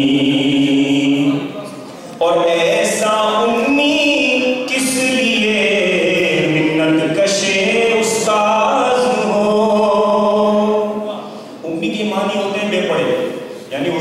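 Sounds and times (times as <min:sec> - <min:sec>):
man chanting through microphone: 0:00.0 - 0:14.0.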